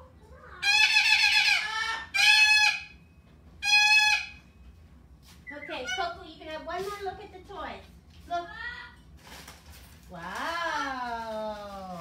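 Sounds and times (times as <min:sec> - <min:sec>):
parrot screeching: 0:00.6 - 0:03.0, 0:03.6 - 0:04.4, 0:05.5 - 0:06.2.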